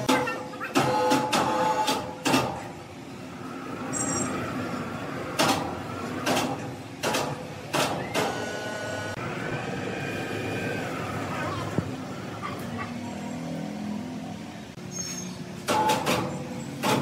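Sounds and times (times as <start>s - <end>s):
sawmill machinery running: 0.0s - 12.3s
sharp knocks or clanks: 5.3s - 8.4s.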